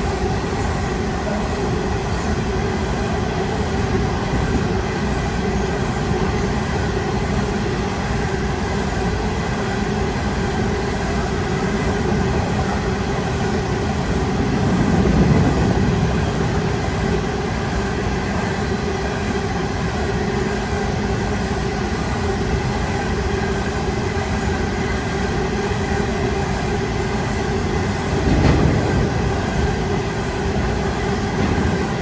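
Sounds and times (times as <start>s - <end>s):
train wheels rumbling on rails: 0.0s - 32.0s.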